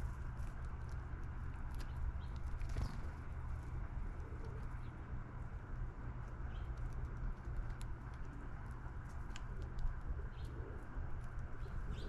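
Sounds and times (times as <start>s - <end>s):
steady low rumble: 0.0s - 12.0s
dove cooing: 9.6s - 12.0s
bird chirps: 11.6s - 12.0s.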